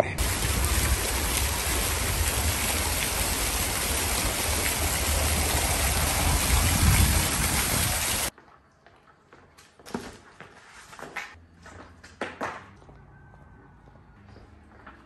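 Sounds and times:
fountain jets splashing: 0.2 - 8.3.

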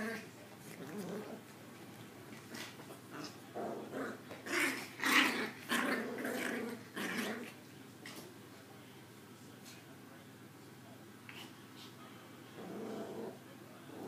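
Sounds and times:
puppies growling: 0.0 - 7.6, 12.5 - 14.0.

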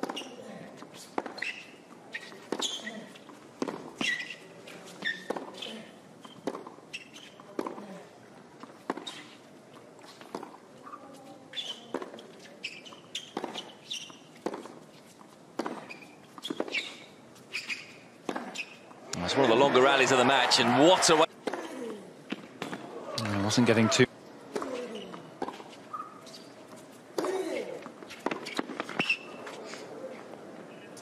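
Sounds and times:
tennis ball hit and bouncing: 0.0 - 0.3, 1.0 - 3.0, 3.6 - 4.4, 5.0 - 5.7, 6.3 - 7.9, 8.6 - 9.4, 10.0 - 11.0, 11.6 - 14.8, 15.6 - 18.8, 24.5 - 29.6
shoes squeaking on court: 0.0 - 31.0.

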